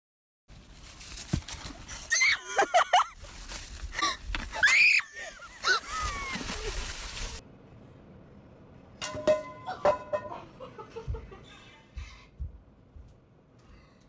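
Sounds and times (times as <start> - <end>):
person laughing in shrieks: 4.5 - 6.7.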